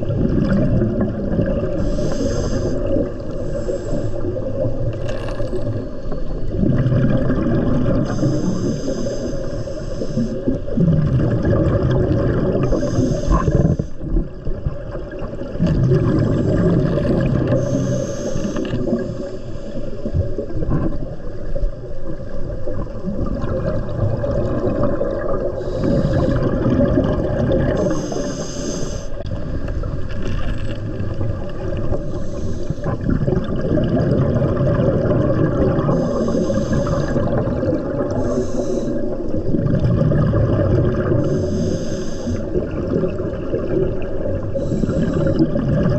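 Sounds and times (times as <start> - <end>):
exhaled bubbles rushing: 0.0 - 8.8, 10.1 - 28.4, 29.2 - 41.8, 42.4 - 45.9
underwater background: 0.0 - 45.9
diver breathing through regulator: 1.7 - 4.7, 8.0 - 10.7, 12.4 - 14.1, 16.0 - 20.2, 25.4 - 26.9, 27.7 - 29.2, 31.8 - 33.1, 35.8 - 39.4, 40.9 - 42.7, 44.5 - 45.9.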